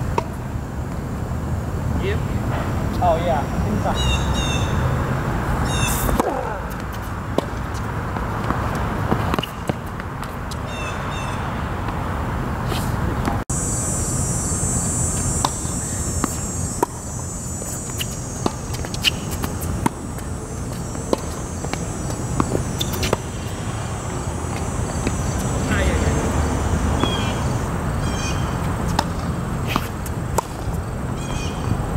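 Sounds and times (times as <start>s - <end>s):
tennis ball off racquets: 0.1s - 1.0s, 5.6s - 10.7s, 15.0s - 27.7s, 28.5s - 31.9s
bird chirping: 3.5s - 5.0s, 5.6s - 6.1s, 10.7s - 11.5s, 27.0s - 28.6s
tennis ball bouncing on court: 5.9s - 10.7s, 15.1s - 27.7s, 28.5s - 30.9s.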